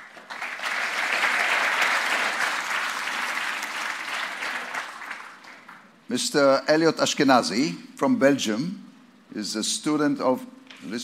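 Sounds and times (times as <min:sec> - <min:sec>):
large audience clapping: 0:00.0 - 0:06.0.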